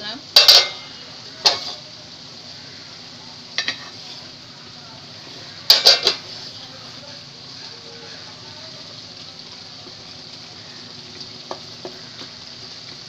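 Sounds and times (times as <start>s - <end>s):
steady low hiss: 0.0s - 13.0s
spoon knocking against metal pot: 0.4s - 0.8s, 5.7s - 6.2s
wooden spoon stirring in pot: 9.5s - 13.0s.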